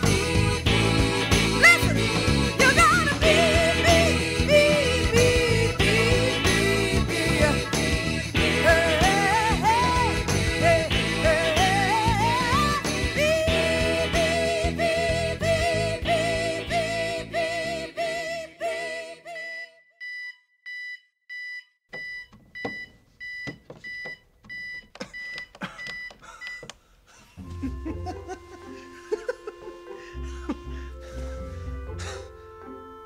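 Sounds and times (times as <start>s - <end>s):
gospel choir with lead singer: 0.0s - 19.7s
digital alarm clock beeping: 19.4s - 26.7s.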